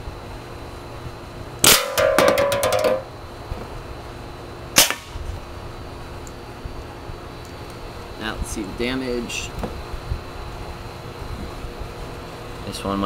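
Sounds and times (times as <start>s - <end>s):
air gun firing rapid shots: 1.6s - 3.0s, 4.8s - 5.2s
pellets hitting aluminium cans: 1.7s - 3.0s.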